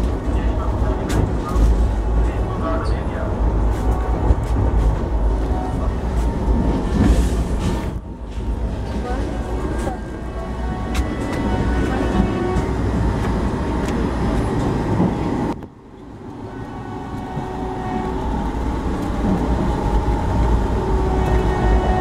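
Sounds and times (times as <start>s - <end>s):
train coach low rumble: 0.0s - 22.0s.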